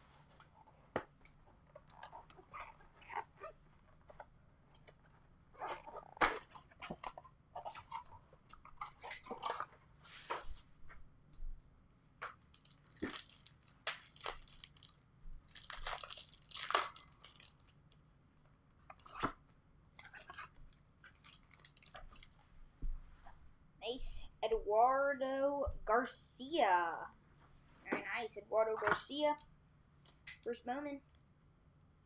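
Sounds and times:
wrappers tearing and crinkling: 12.5 - 17.8, 19.9 - 22.5.

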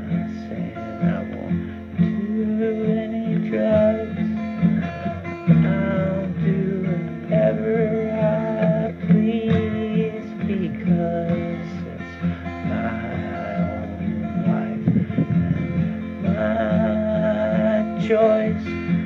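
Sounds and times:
strummed acoustic guitar: 0.0 - 19.0
pulsing bass: 12.7 - 17.7.

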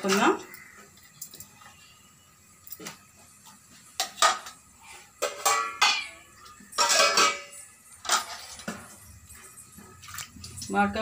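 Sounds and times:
steel dishes clattering: 4.0 - 9.2.

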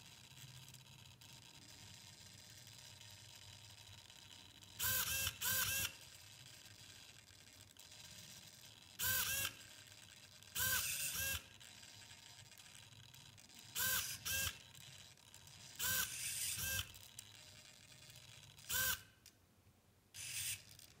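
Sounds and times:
servo motors whirring: 4.8 - 5.9, 9.0 - 9.6, 10.6 - 11.7, 13.7 - 14.7, 15.6 - 19.1, 20.2 - 20.9.

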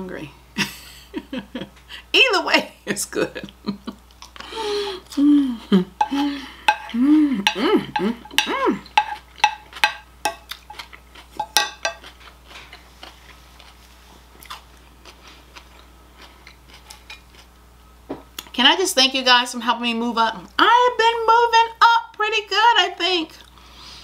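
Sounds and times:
hums of enjoyment: 3.4 - 9.0
chewing salad: 4.0 - 5.2, 6.0 - 17.6
cutlery clicking on plate: 8.3 - 10.7, 11.4 - 12.1.

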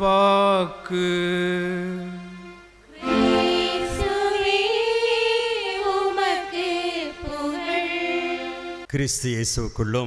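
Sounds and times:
women's choir singing: 2.9 - 8.9.

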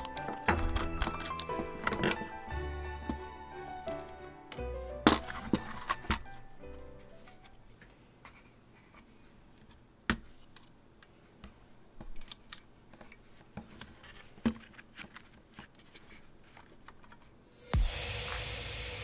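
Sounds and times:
tools and parts clicking: 12.0 - 13.2.

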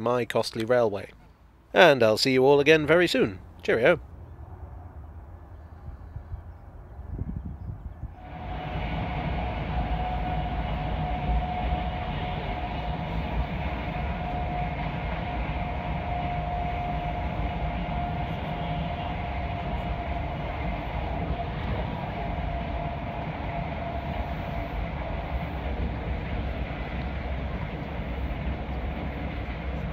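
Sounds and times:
steady whine: 8.0 - 29.9
train wheels rumbling on track: 8.0 - 29.9.

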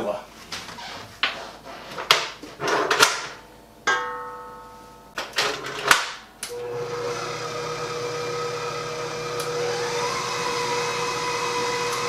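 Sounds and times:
electric stand mixer running: 6.5 - 12.0.

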